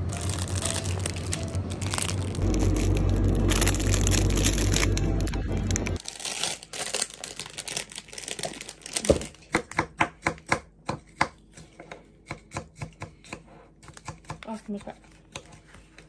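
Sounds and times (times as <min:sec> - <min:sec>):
steady low hum: 0:00.0 - 0:06.0
loud crunching grinding noise: 0:00.0 - 0:09.3.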